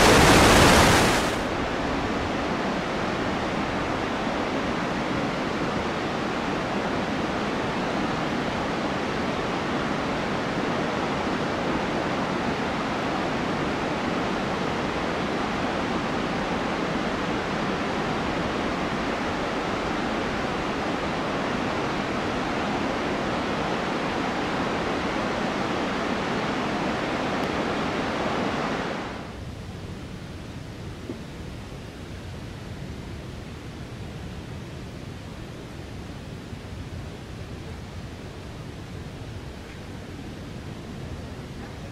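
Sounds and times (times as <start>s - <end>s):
waterfall rushing: 0.0s - 5.6s.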